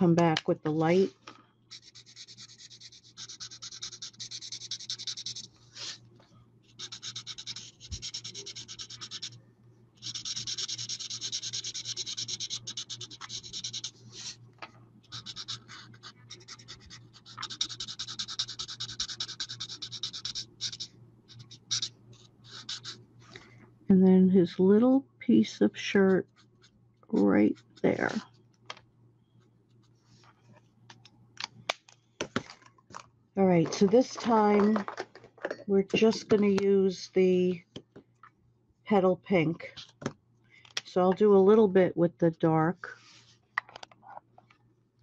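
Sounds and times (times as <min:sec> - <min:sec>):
marker scratching on card: 0:01.7 - 0:06.0, 0:06.7 - 0:09.4, 0:10.0 - 0:14.4, 0:15.0 - 0:23.0, 0:26.3 - 0:28.2.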